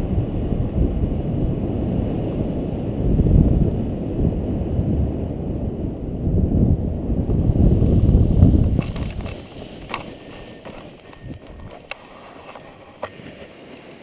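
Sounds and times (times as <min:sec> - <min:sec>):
wind rushing over microphone: 0:00.0 - 0:13.2
sharp clicks of wing: 0:08.7 - 0:13.2.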